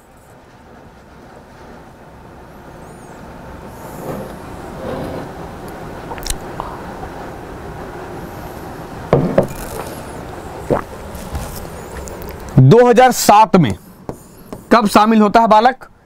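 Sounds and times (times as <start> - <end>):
steady background hiss: 0.0 - 16.0
mug handling knocks and rustles: 9.2 - 9.6
low throat sounds: 10.7 - 10.9.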